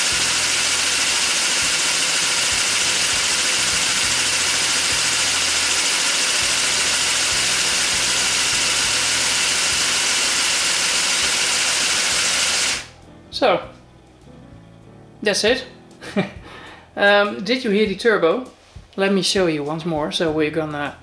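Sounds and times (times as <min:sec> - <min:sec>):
toy air compressor motors running: 0:00.0 - 0:12.9.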